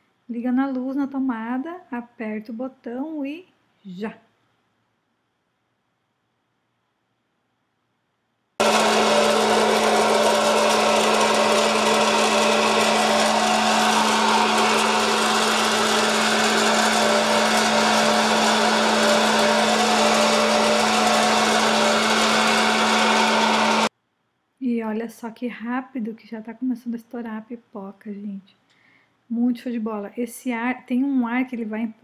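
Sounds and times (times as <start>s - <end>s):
air rushing through kernels: 8.6s - 23.9s
popcorn popper fan humming: 8.6s - 23.9s.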